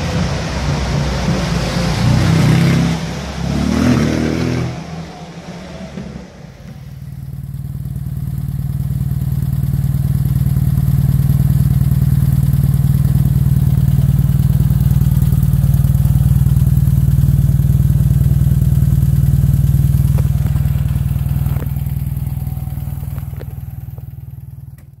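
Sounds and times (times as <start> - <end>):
car engine idling: 0.0 - 25.0.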